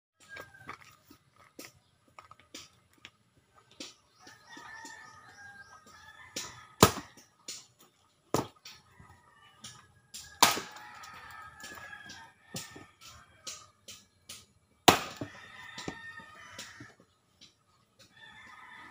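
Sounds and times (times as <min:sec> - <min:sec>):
rooster crowing: 0:00.2 - 0:00.9, 0:04.2 - 0:07.2, 0:08.9 - 0:13.7, 0:15.1 - 0:17.0, 0:18.1 - 0:18.9
axe chopping log: 0:06.4 - 0:07.7, 0:10.2 - 0:10.8, 0:14.3 - 0:16.0.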